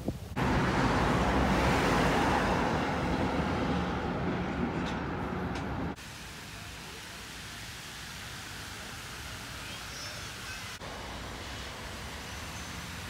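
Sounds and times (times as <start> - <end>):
rumble of vehicle traffic: 0.1 - 13.0
low engine hum: 0.3 - 6.0
steady hiss: 5.9 - 13.0.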